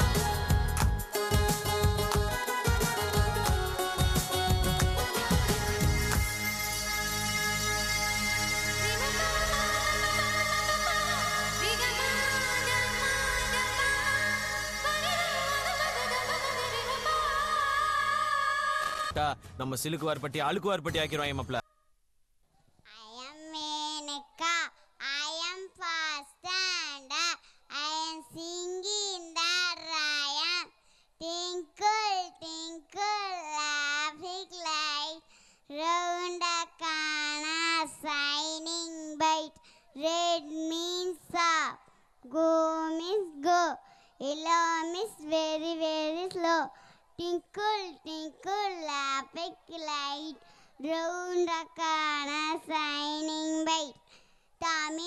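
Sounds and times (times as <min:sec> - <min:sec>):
girl singing unaccompanied: 0:07.8 - 0:19.1, 0:22.9 - 0:55.0.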